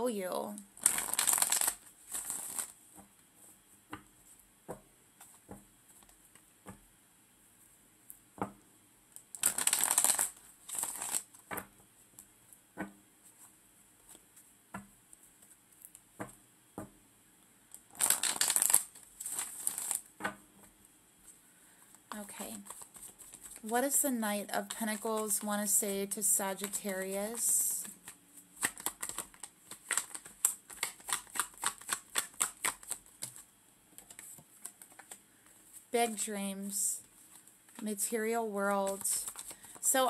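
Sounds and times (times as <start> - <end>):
cards shuffled by hand: 0.8 - 3.0, 9.4 - 11.7, 17.9 - 20.1, 22.5 - 23.8, 26.6 - 35.9, 38.8 - 39.9.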